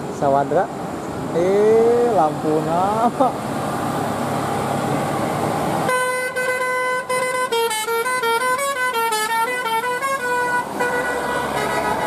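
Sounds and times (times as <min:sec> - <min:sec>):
bus engine and road noise: 0:00.0 - 0:12.0
multi-note air horn tune: 0:05.9 - 0:12.0.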